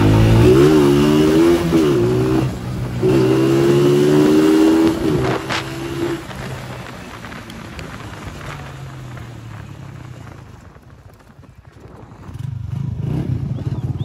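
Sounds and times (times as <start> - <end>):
louder engine approaching: 0.0 - 14.0.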